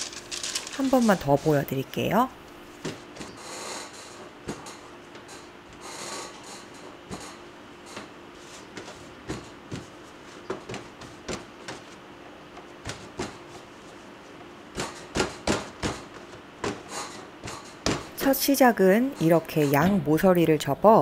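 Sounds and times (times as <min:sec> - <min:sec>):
dough patted and pressed: 0:08.7 - 0:18.2.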